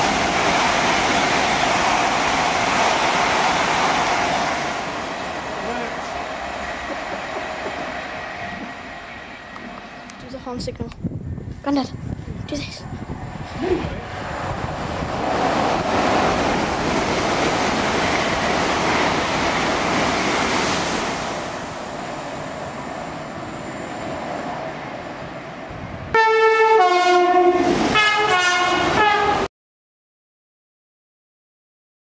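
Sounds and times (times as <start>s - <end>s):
train passing rush: 0.0s - 29.5s
train horn blasts: 26.1s - 29.5s.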